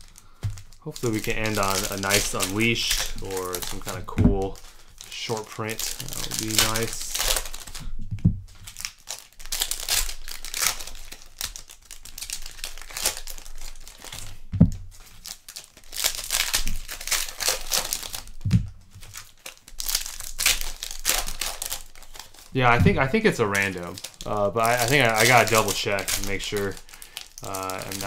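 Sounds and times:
foil wrappers tearing and crinkling: 0.0 - 28.0
dull thumps: 7.5 - 8.6, 14.5 - 14.9, 18.4 - 18.7, 22.6 - 23.2.

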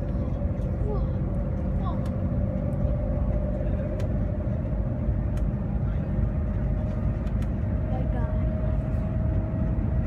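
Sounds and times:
train cabin low rumble: 0.0 - 10.0.

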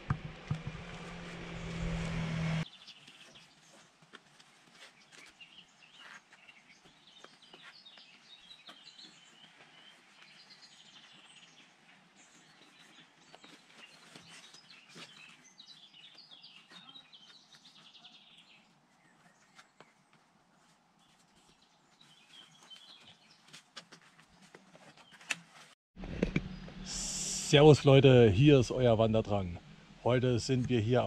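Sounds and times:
songbirds chirping and trilling: 2.6 - 25.3.

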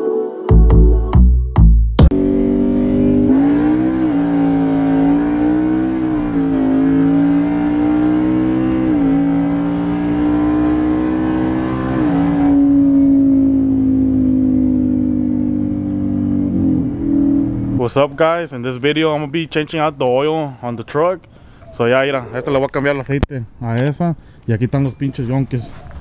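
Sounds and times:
rushing exhaust: 2.1 - 19.0.

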